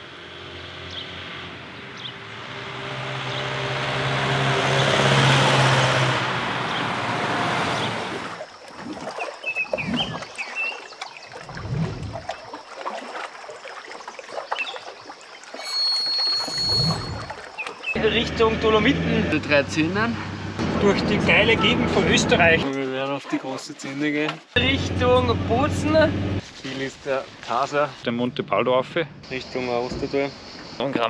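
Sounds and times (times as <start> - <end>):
vehicle motor humming past: 0.0 - 8.3, 18.0 - 22.6.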